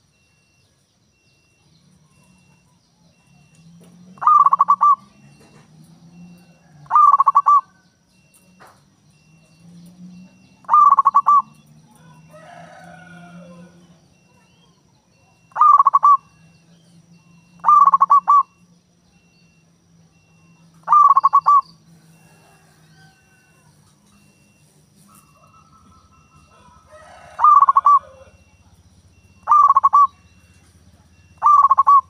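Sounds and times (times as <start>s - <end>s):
dove cooing: 2.1s - 8.3s, 10.0s - 14.6s, 15.2s - 16.6s, 17.2s - 18.6s, 20.2s - 32.0s.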